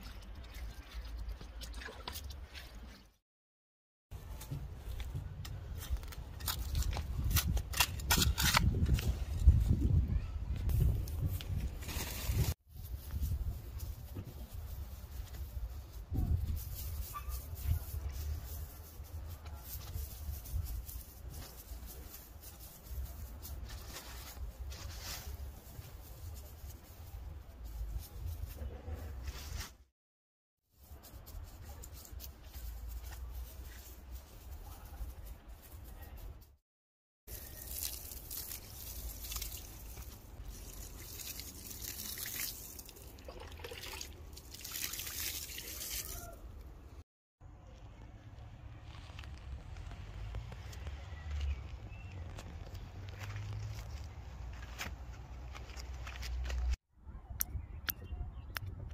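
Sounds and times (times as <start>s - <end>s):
dry grass clippings rustling: 10.8s - 29.7s, 30.8s - 36.5s, 37.3s - 43.0s, 48.6s - 56.8s
water pouring onto grass: 37.3s - 46.4s.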